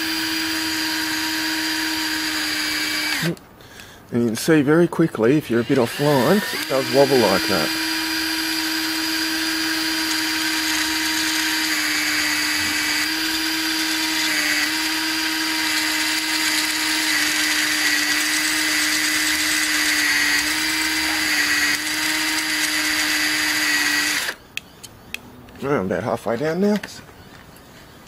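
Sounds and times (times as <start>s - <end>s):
cordless drill whining: 0.0s - 3.4s, 5.5s - 24.4s.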